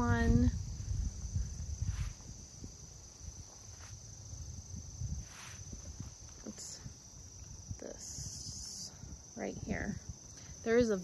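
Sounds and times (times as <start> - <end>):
insect chorus: 0.0 - 11.0
footsteps through undergrowth: 3.2 - 4.1, 5.2 - 6.5.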